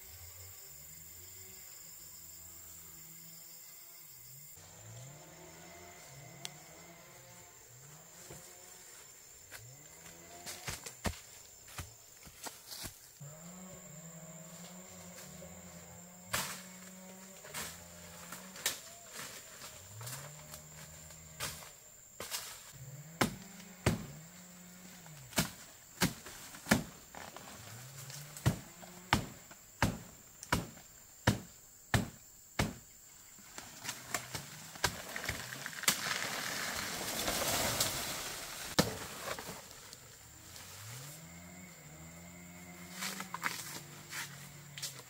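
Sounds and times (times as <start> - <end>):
sharp chopping strikes: 23.2 - 24.2, 28.4 - 32.8.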